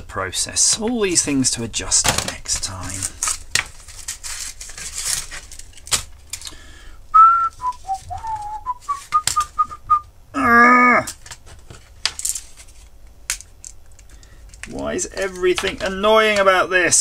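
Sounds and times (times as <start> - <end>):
person whistling a tune: 7.1 - 10.1.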